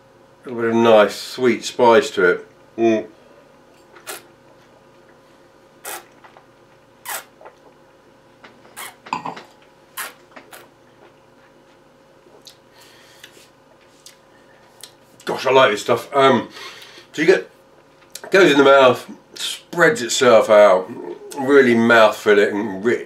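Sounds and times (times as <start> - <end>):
person slurping wine: 4.0 - 4.3, 5.8 - 6.4.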